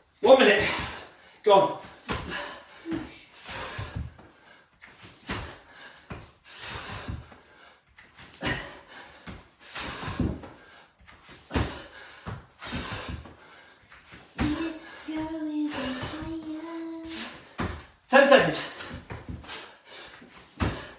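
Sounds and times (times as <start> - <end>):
thuds of feet and hands landing: 1.8 - 4.3, 4.9 - 7.4, 8.1 - 18.0, 18.7 - 19.6, 20.2 - 20.9.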